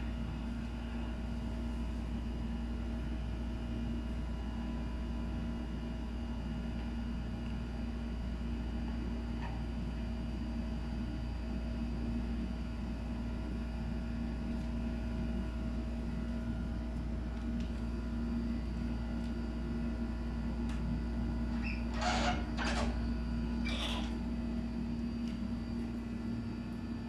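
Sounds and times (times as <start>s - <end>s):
low background hum: 0.0s - 27.0s.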